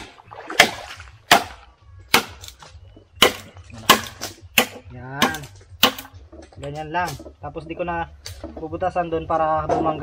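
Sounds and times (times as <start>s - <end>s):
knife chopping bamboo: 0.0s - 2.6s, 3.2s - 6.1s.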